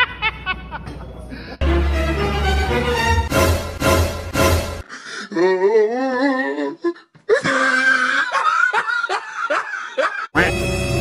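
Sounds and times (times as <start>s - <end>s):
person laughing: 0.0s - 1.6s, 7.3s - 10.5s.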